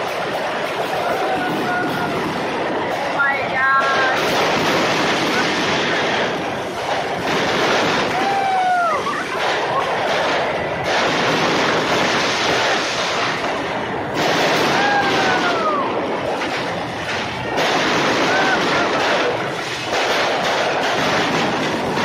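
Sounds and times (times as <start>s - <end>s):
fireworks crackling: 0.0s - 22.0s
firework whistle: 3.8s - 13.5s, 14.2s - 22.0s.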